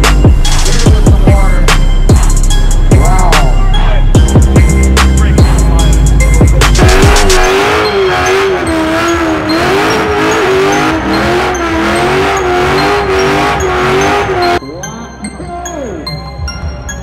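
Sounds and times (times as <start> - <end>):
music with heavy beat: 0.0 - 14.6
car engine revving in burnout: 6.6 - 14.6.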